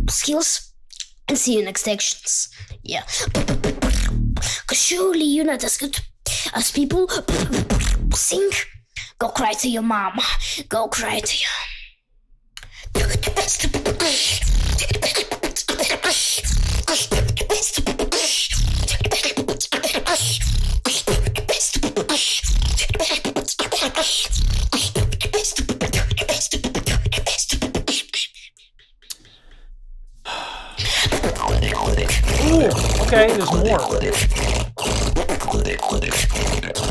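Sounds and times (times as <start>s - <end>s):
person beatboxing: 2.6s - 4.8s, 7.0s - 8.7s, 12.6s - 29.3s, 30.8s - 36.9s.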